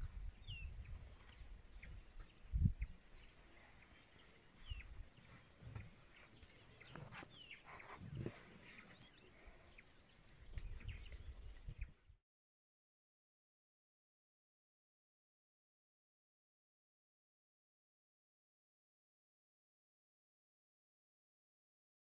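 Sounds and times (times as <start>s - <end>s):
birds chirping: 0.0s - 12.2s.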